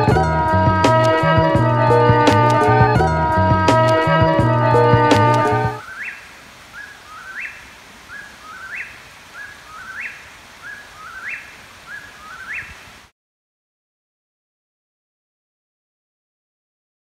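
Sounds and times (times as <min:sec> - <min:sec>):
faint night background hiss: 0:05.4 - 0:13.1.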